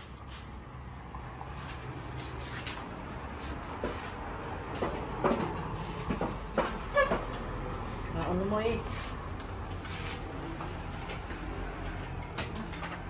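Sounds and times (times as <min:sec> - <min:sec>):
knocks and clatters: 0:03.6 - 0:07.5, 0:11.0 - 0:13.0.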